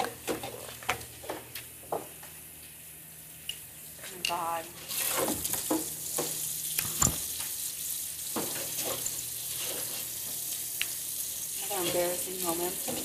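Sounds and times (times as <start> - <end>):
water running into sink: 4.8 - 13.0
dishes clinking: 5.7 - 7.3.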